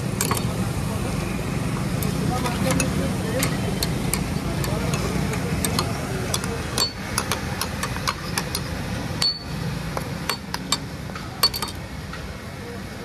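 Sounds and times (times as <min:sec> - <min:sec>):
steady background noise: 0:00.0 - 0:13.0
metal spatula clinking on griddle: 0:11.4 - 0:11.8.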